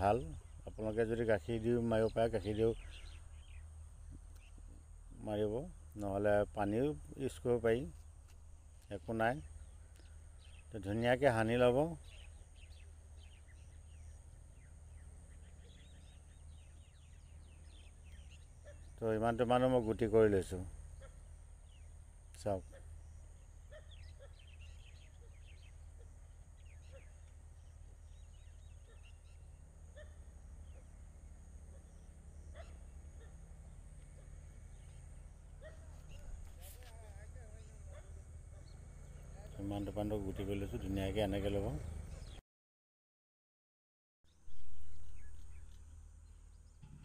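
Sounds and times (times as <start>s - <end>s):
low steady hum: 0.0s - 42.3s
faint bird chirping: 0.0s - 42.4s, 44.3s - 47.0s
faint animal calls: 14.9s - 19.1s, 20.6s - 21.9s, 22.6s - 41.0s.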